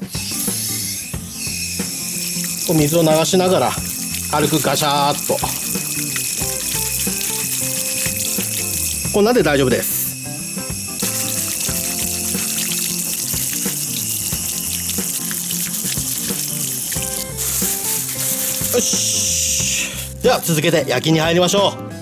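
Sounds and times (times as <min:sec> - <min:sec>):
tap water running and splashing: 0:00.0 - 0:20.2
clams scrubbed with sponge: 0:01.9 - 0:09.1, 0:11.0 - 0:20.2.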